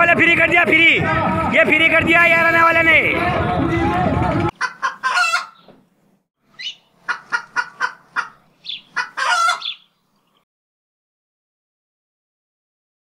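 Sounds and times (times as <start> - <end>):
chicken clucking: 4.5 - 5.6, 6.6 - 9.8
chicken squawk: 4.5 - 5.7, 6.6 - 9.9.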